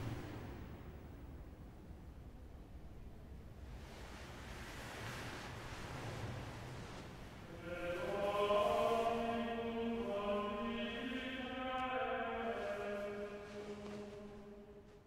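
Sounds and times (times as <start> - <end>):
voices chanting in unison: 7.4 - 14.9.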